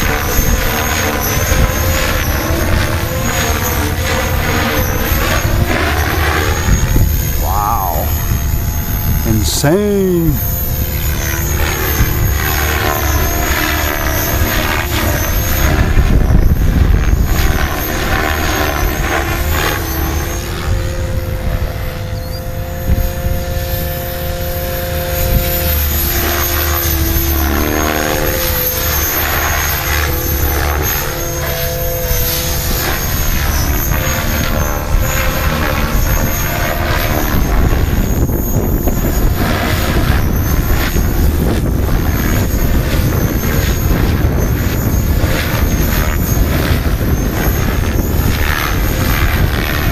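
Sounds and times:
helicopter rotor whooshing: 0.0 - 49.9
electric motor whining: 10.4 - 49.8.

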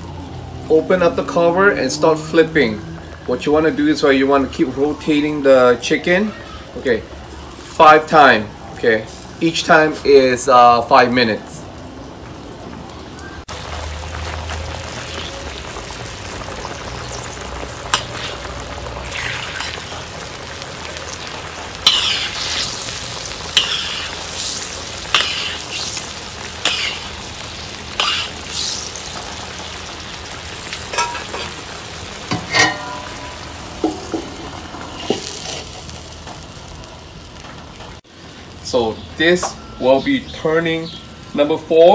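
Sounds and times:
sauce sizzling and bubbling: 0.0 - 41.9
metal spoon scraping pot: 32.3 - 33.4.

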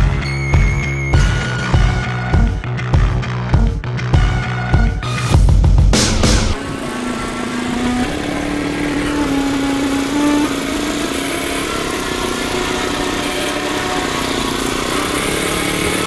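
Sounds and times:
small petrol engine running: 6.6 - 16.0.

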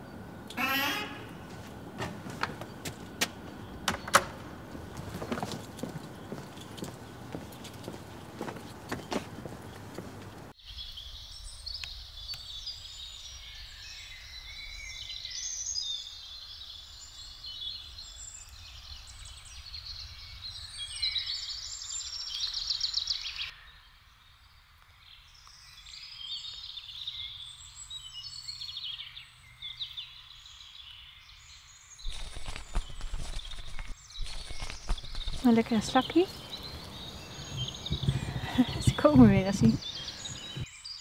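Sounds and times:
low outdoor rumble: 0.0 - 10.5, 32.1 - 40.7
songbirds singing and trilling: 0.0 - 41.0.

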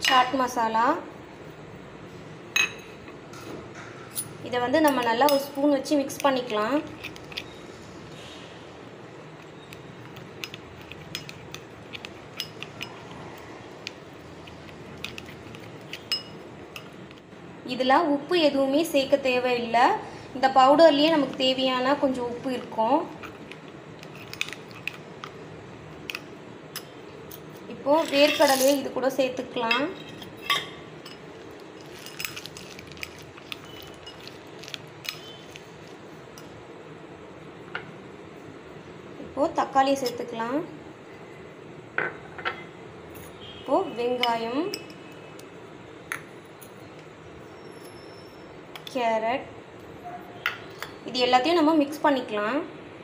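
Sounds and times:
spoon clinking against glass bowl: 2.6 - 3.0, 10.1 - 13.1, 15.0 - 17.0, 33.1 - 34.3
spoon stirring thick paste: 9.3 - 17.2, 32.1 - 36.0
spoon clinking on glass bowl: 15.0 - 17.0.

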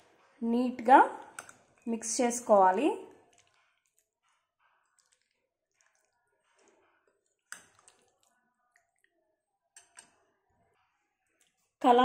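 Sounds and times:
wet squelches of stirring in a bowl: 0.0 - 12.0.

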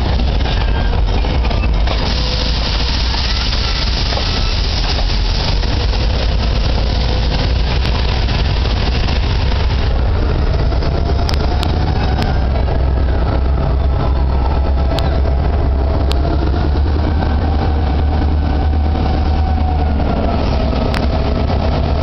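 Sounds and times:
train wheels rumbling on rails: 0.0 - 22.0.

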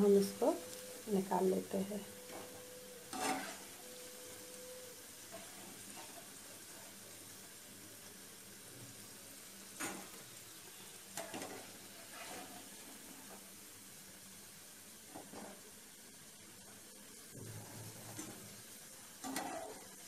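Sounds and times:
fritters sizzling in oil: 0.0 - 20.0
spatula knocking and scraping pan: 3.1 - 3.7.

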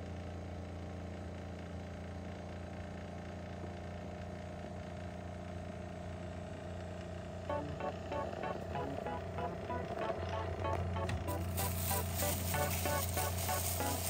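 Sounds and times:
circulator pump motor hum: 5.2 - 14.0.

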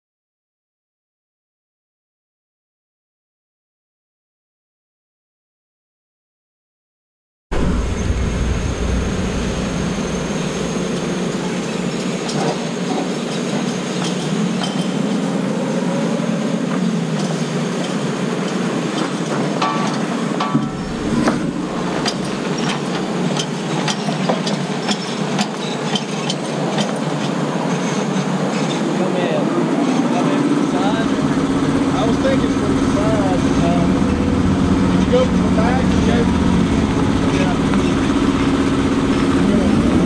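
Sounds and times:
forklift engine running: 7.5 - 27.8, 29.7 - 40.0
metal clanks and knocks: 7.6 - 15.6, 16.8 - 28.8.

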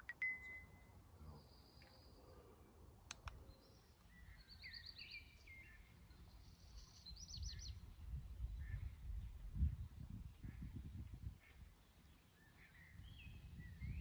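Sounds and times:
songbirds singing: 0.0 - 14.0
sharp clicks: 3.1 - 3.4.

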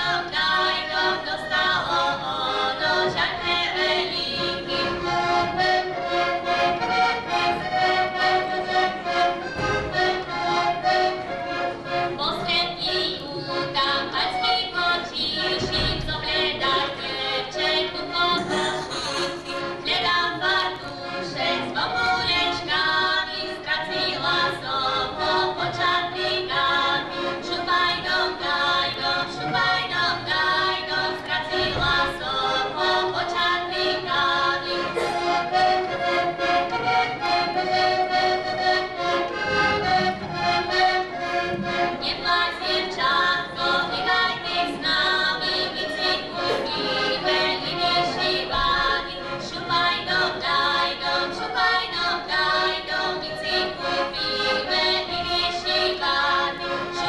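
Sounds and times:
women singing: 0.0 - 5.8, 12.2 - 35.1, 42.0 - 57.0
accordion folk tune: 0.0 - 57.0.

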